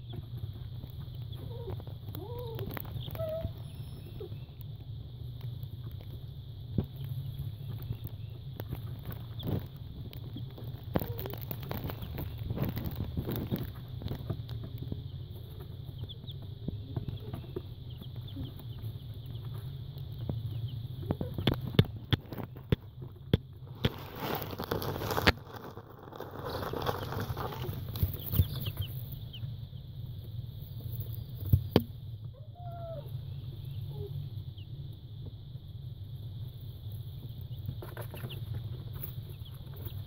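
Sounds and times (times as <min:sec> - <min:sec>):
baby chicks peeping: 0:00.0 - 0:40.0
steady low hum: 0:00.0 - 0:40.0
rustling in paper bedding: 0:23.7 - 0:29.1.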